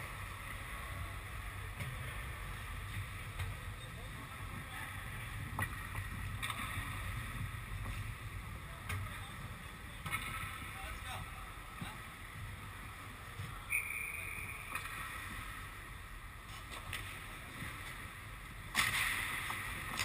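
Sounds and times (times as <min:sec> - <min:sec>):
low rink rumble: 0:00.0 - 0:20.0
sharp clicks on ice: 0:18.7 - 0:20.0.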